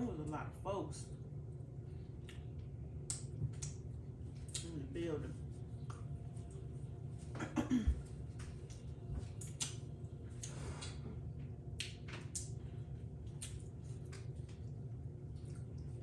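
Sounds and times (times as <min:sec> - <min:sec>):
low hum: 0:00.0 - 0:16.0
chewing: 0:08.6 - 0:16.0.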